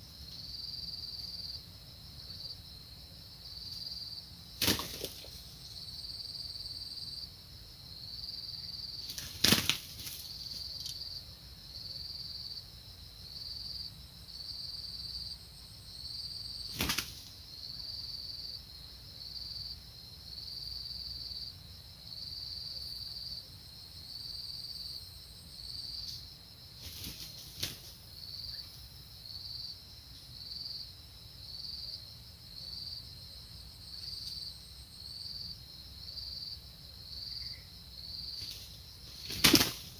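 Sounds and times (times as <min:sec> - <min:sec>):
wings beating sharp slaps: 0:04.6 - 0:05.4, 0:09.0 - 0:10.3, 0:16.7 - 0:17.3, 0:26.8 - 0:27.9, 0:38.4 - 0:39.9.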